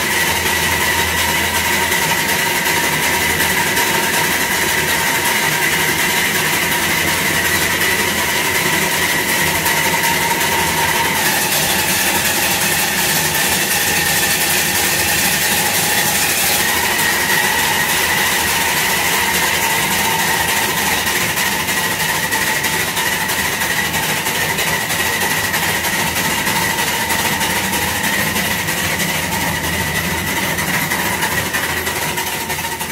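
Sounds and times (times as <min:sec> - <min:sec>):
rumble of train wheels: 0:00.1 - 0:32.9
steady high whine: 0:07.1 - 0:32.8.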